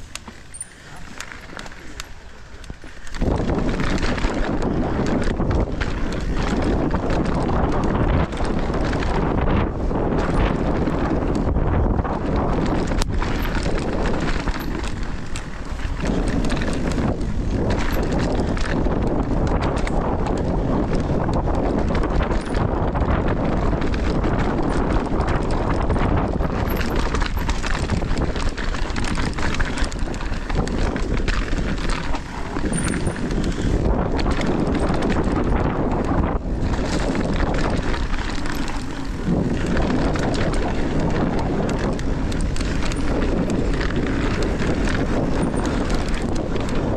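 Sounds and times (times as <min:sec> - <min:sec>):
bike knocks and rattles: 0:00.0 - 0:46.9
bike tyres on dirt trail: 0:00.0 - 0:46.9
wind rushing on microphone: 0:00.0 - 0:46.9.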